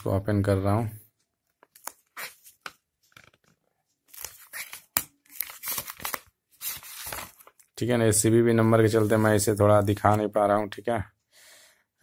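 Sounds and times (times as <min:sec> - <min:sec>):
paper tearing and rustling: 0:04.1 - 0:07.6.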